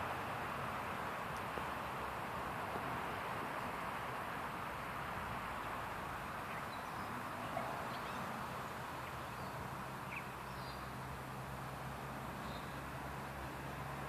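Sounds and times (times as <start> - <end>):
outdoor background hiss: 0.0 - 14.0
faint bird chirps: 12.4 - 12.8.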